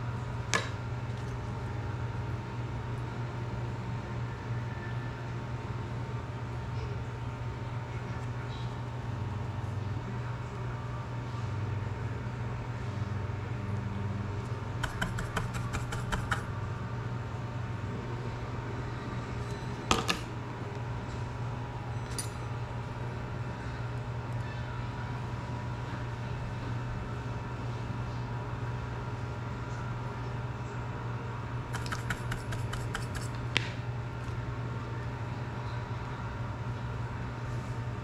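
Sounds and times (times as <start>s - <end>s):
low room hum: 0.0s - 38.0s
sharp knock on workbench: 14.8s - 16.4s.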